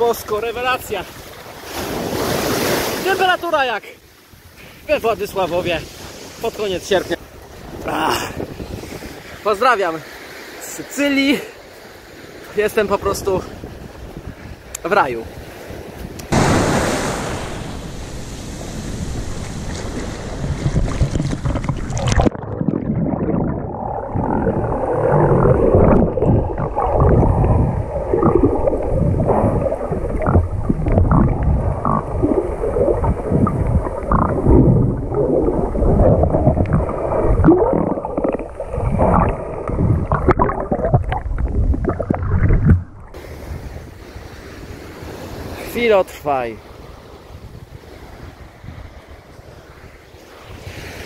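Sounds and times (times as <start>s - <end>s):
sea surf: 0.0s - 51.0s
wind on microphone: 4.3s - 9.5s, 12.8s - 45.6s, 46.7s - 51.0s
underwater sloshing and gurgling: 15.5s - 45.4s.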